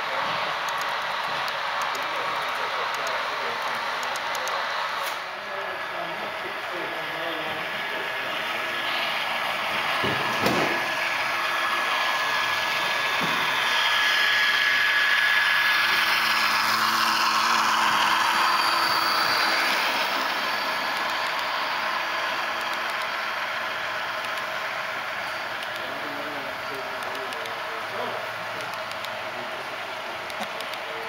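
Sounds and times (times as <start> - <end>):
model train rumbling past: 0.0 - 31.0.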